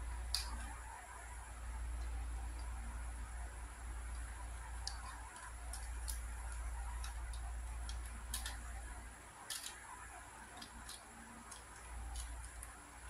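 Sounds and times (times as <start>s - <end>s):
puzzle cube layers clicking: 4.1s - 12.8s.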